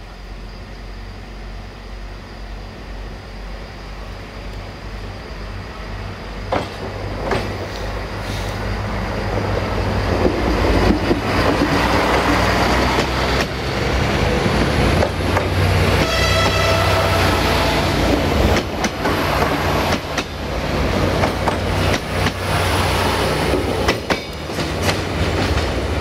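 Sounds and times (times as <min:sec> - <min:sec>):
diesel train engine drone: 0:00.0 - 0:26.0
train wheels clattering over joints: 0:06.5 - 0:08.5, 0:09.3 - 0:13.8, 0:18.0 - 0:22.5, 0:23.4 - 0:25.9.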